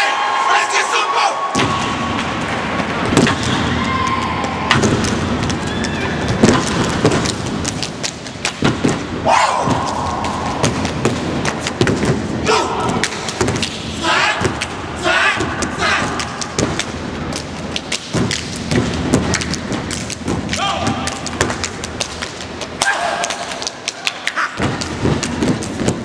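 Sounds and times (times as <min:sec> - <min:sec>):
clapping and body slapping: 0:15.8 - 0:26.0.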